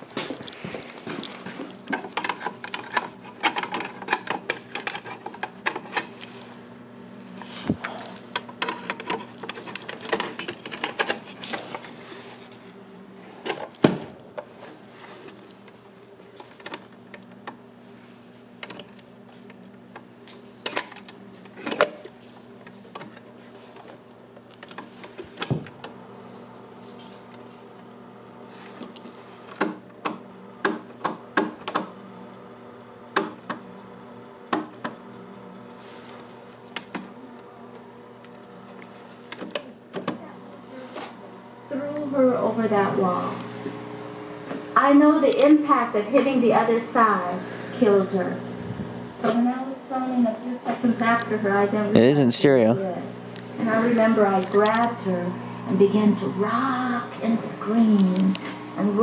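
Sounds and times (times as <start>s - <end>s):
stereo console humming: 0.0s - 59.0s
clicks and knocks of handling: 0.2s - 6.2s, 7.8s - 11.9s.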